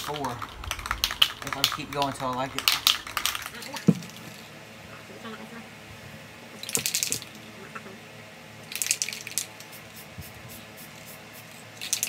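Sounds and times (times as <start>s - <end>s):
spray paint can spraying: 8.7s - 12.0s.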